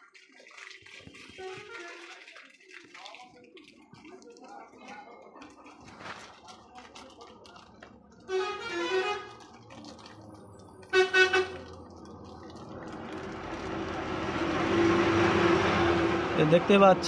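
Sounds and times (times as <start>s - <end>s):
vehicle horn honking: 8.3s - 9.3s, 10.9s - 11.7s
vehicle running noise: 8.4s - 17.0s.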